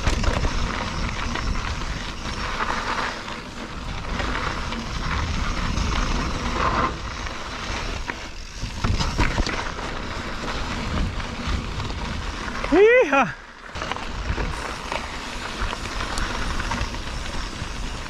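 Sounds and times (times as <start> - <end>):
bike knocks and rattles: 0.0 - 13.0
bike tyres on dirt trail: 0.0 - 18.0.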